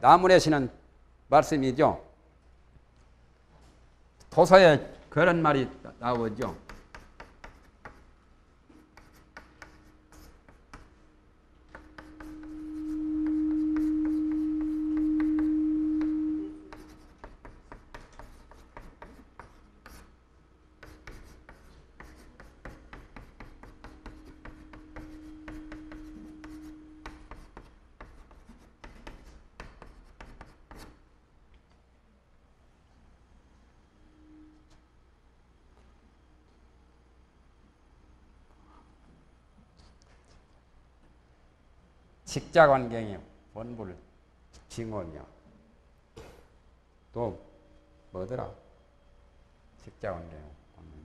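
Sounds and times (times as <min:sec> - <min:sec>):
chalk tapping on blackboard: 0:06.0 - 0:08.1, 0:08.7 - 0:11.0, 0:11.7 - 0:20.1, 0:20.8 - 0:31.0
steady low tone: 0:11.6 - 0:17.0, 0:50.3 - 0:51.0.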